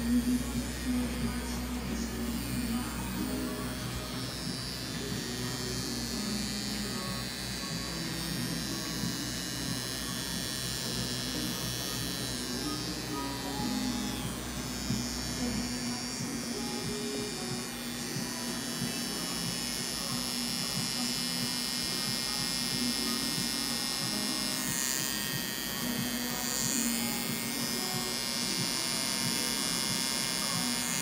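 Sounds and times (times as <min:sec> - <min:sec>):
background music: 0:00.0 - 0:31.0
tattoo pen machine buzzing: 0:00.0 - 0:31.0.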